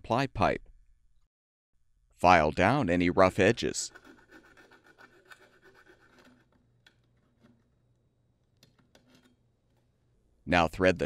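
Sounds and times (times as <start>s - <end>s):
metal file rasping on pipe: 3.3s - 6.7s.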